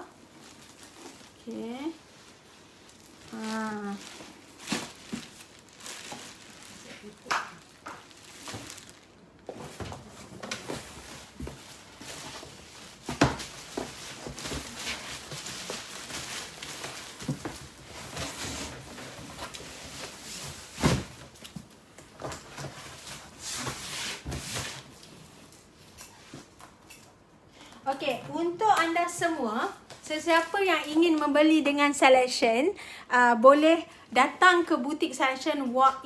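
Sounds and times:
plastic and cardboard rustling: 0:00.0 - 0:26.8.

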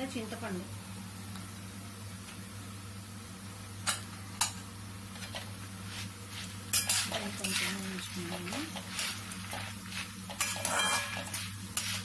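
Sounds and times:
spatula scraping a pan: 0:05.2 - 0:12.0.

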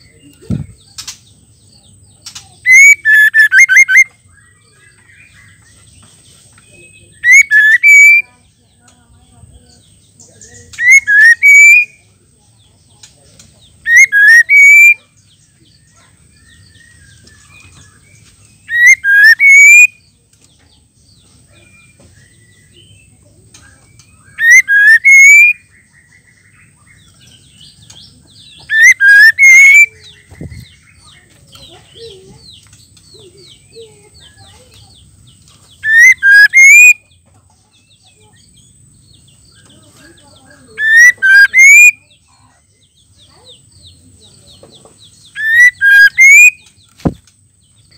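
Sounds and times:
soft bird chirps: 0:00.0 - 0:47.9
bird whistled calls: 0:02.6 - 0:04.2, 0:07.1 - 0:08.3, 0:10.6 - 0:12.0, 0:13.8 - 0:15.1, 0:18.6 - 0:20.1, 0:24.0 - 0:25.8, 0:28.4 - 0:31.0, 0:35.7 - 0:37.1, 0:40.7 - 0:42.2, 0:45.2 - 0:47.2.

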